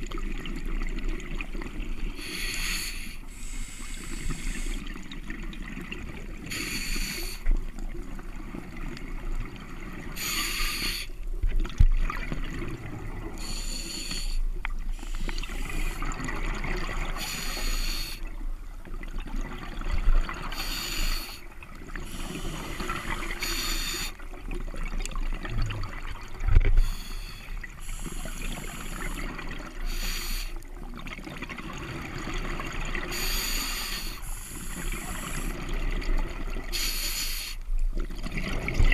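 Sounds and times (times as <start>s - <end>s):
underwater water wash: 0.0s - 38.9s
scuba regulator breathing: 2.2s - 5.0s, 6.5s - 7.5s, 10.2s - 11.2s, 13.4s - 16.2s, 17.1s - 18.3s, 20.5s - 24.2s, 26.7s - 30.7s, 33.1s - 35.8s, 36.7s - 37.6s
exhaled bubbles rushing: 15.6s - 17.2s, 24.3s - 26.8s, 30.9s - 33.1s, 38.0s - 38.9s.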